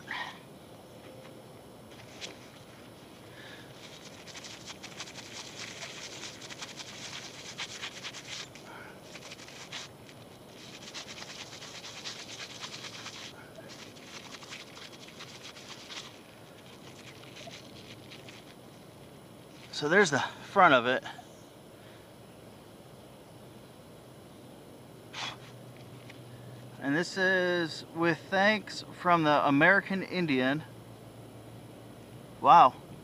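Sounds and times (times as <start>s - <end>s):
toothbrush scrubbing metal: 3.7s - 18.5s.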